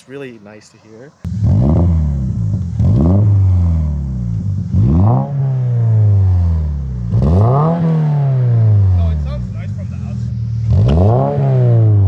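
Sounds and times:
car engine revving: 1.3 - 12.0.

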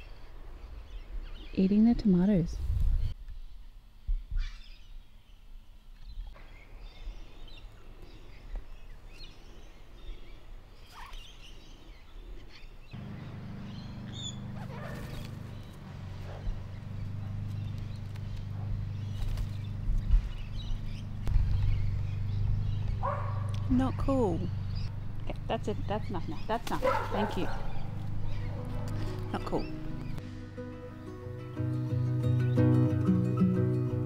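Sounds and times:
parrots calling and chirping: 12.5 - 30.2
low steady rumble: 13.0 - 30.5.

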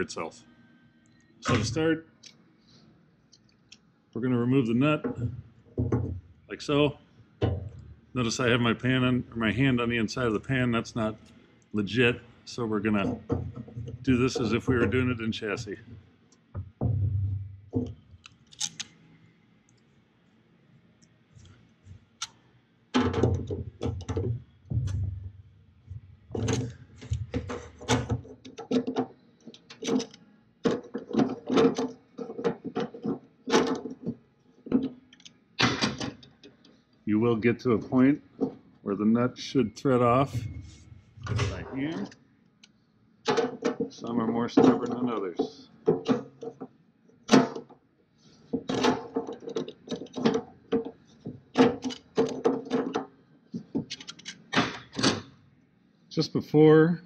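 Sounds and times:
metallic clicks and clanks of tools: 17.8 - 19.0, 26.3 - 36.7, 48.5 - 55.3
pliers clicking and scraping on nut: 18.2 - 18.9, 53.9 - 54.5.

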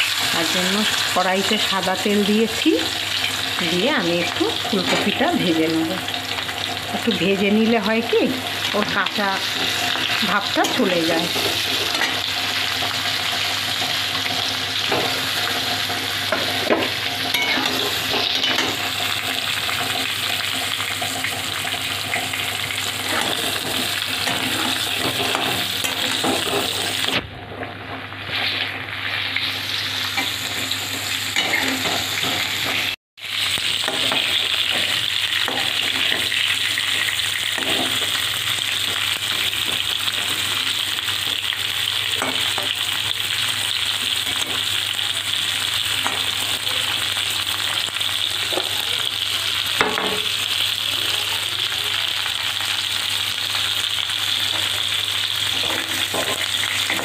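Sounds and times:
vegetables sizzling in hot oil: 0.0 - 57.0
metal spatula scraping: 14.8 - 22.3, 23.0 - 27.1.

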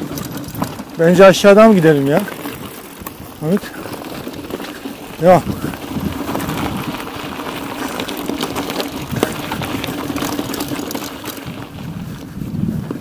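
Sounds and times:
bike rattling over bumps: 0.0 - 13.0.

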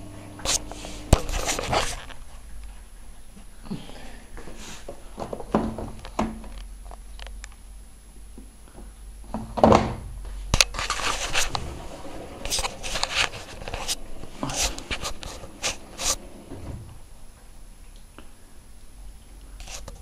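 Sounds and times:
washing machine drum swishing: 10.9 - 17.0.

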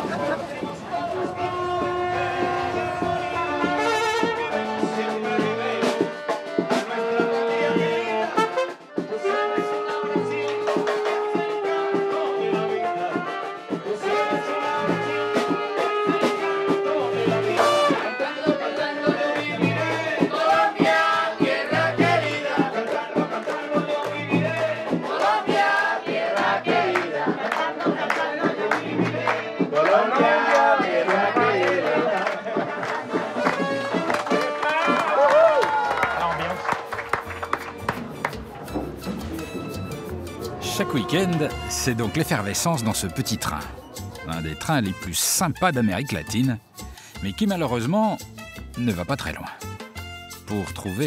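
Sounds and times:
voices singing along: 0.0 - 8.4, 9.1 - 34.1, 35.7 - 44.6
saxophone: 0.0 - 20.6, 31.2 - 45.1
accordion: 0.0 - 34.8, 36.0 - 51.0
latin dance band music: 0.0 - 51.0
hands clapping in time: 31.6 - 43.8.

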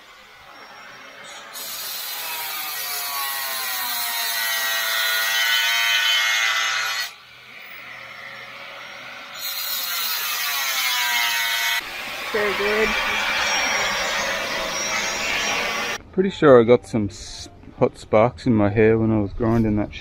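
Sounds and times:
angle grinder cutting metal: 0.0 - 16.0.

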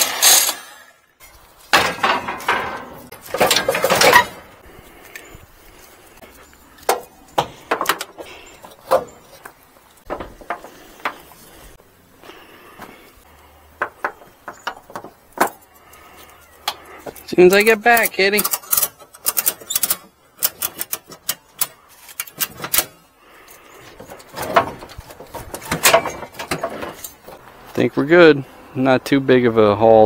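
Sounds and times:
scrap steel clanking: 0.0 - 5.3, 13.8 - 27.5.

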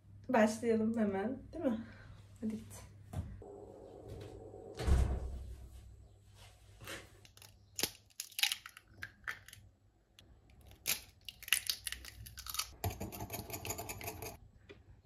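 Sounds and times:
eggs cracked on glass bowl: 7.3 - 9.7, 10.5 - 14.3
fork beating eggs in bowl: 12.1 - 14.4.

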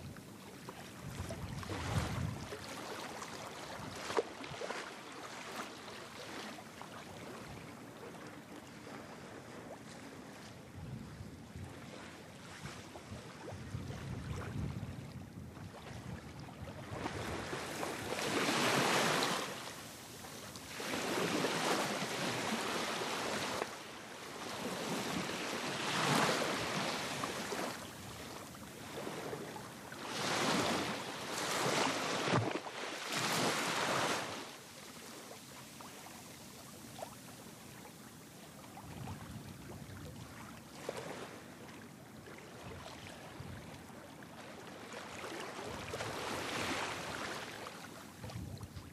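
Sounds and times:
waves splashing: 17.0 - 38.8, 44.6 - 48.3.

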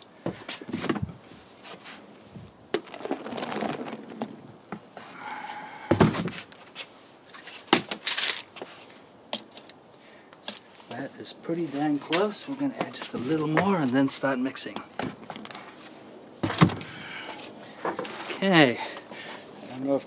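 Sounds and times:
foam sliding: 1.8 - 6.0.

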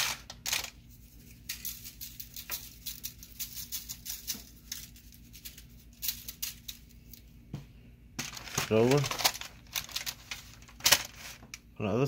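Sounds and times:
seasoning shaker rattling: 0.0 - 7.2.

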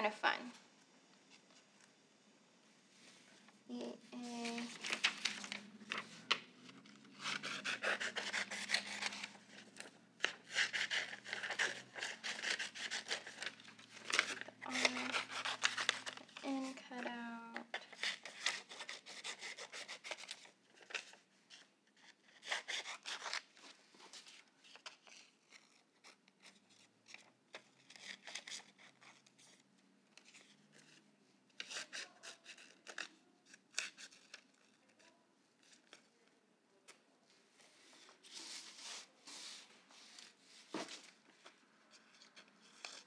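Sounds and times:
paper rustling: 3.0 - 36.2, 37.6 - 43.0
scissors snipping paper: 7.2 - 21.2, 31.6 - 34.8.

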